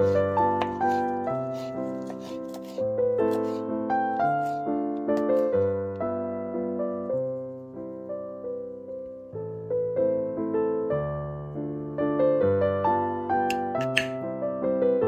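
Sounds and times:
slow piano music: 0.0 - 15.0
knife chopping on wooden board: 0.4 - 2.8, 13.5 - 14.2.

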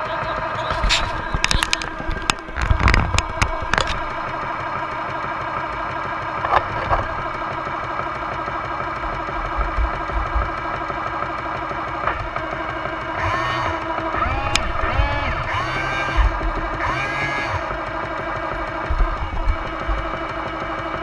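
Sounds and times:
toy tank engine idling: 0.0 - 21.0
clicks and knocks of handling: 0.7 - 4.6, 6.4 - 7.3.

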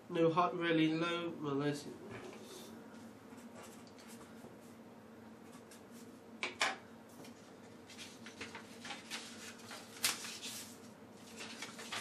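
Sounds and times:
paper rustling: 7.3 - 12.0.

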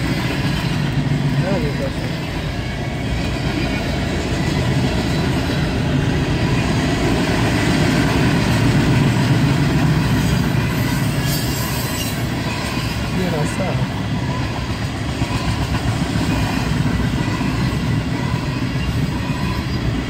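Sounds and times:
steel wheels rumbling on rails: 0.0 - 20.0.

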